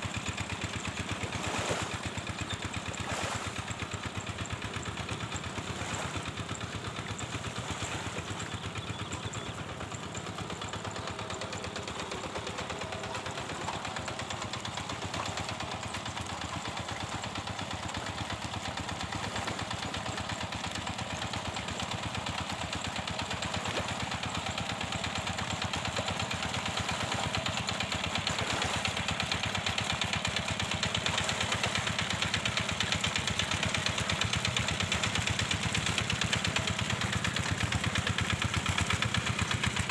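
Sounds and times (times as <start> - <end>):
hand tractor engine chugging: 0.0 - 39.9.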